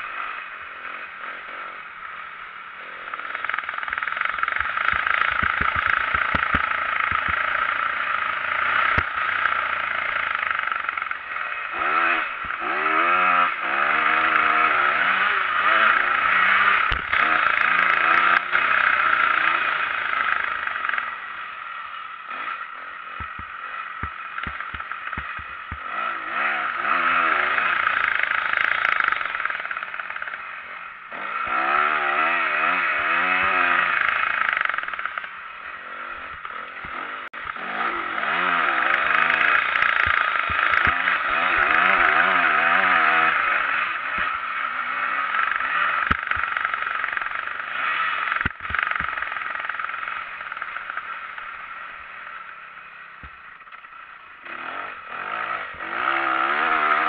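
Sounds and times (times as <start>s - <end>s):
motocross bike engine revving: 0.0s - 57.0s
sharp knocks: 23.2s - 25.9s.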